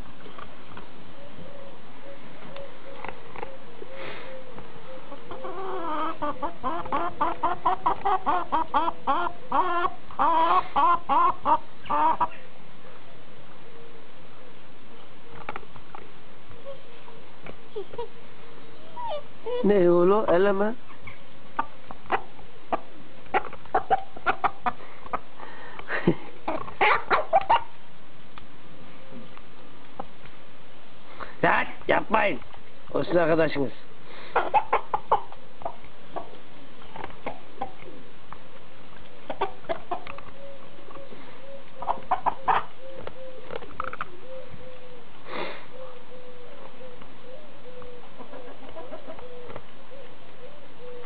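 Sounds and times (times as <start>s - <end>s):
hen clucking: 4.4s - 12.4s, 18.9s - 25.3s, 25.9s - 27.8s, 34.2s - 38.1s, 39.0s - 45.0s, 45.8s - 51.0s.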